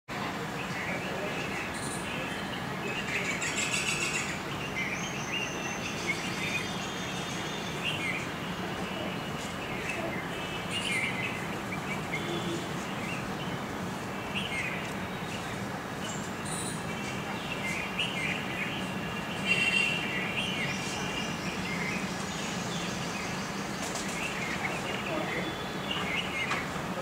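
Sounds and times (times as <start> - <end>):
songbirds chirping: 0.1 - 27.0
steady background hiss: 0.2 - 27.0.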